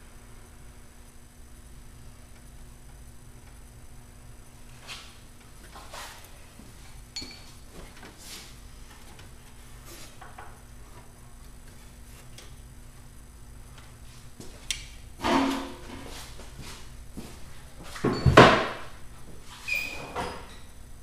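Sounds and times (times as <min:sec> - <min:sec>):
metal tools clinking: 0:07.2 - 0:07.6
loud metal clank: 0:15.2 - 0:16.0.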